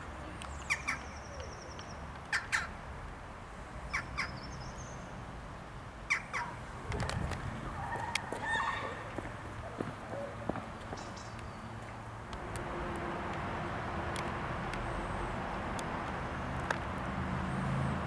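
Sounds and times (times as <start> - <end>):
jackdaws calling: 0.6 - 2.8, 3.9 - 4.6, 6.1 - 6.7.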